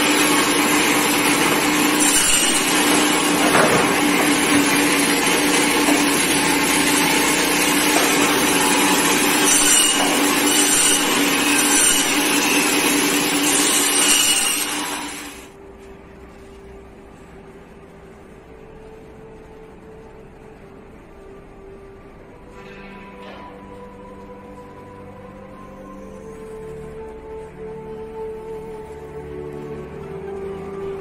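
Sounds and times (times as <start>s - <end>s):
band saw motor hum: 0.0s - 15.5s
saw blade cutting bone: 8.0s - 15.3s.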